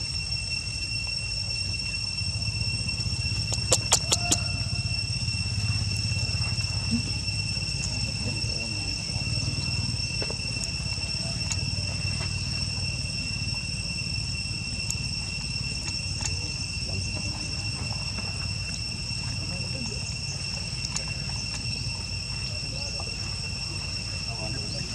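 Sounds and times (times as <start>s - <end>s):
insects droning: 0.0s - 24.9s
low rumble: 0.0s - 24.9s
sharp clicks: 3.3s - 4.6s.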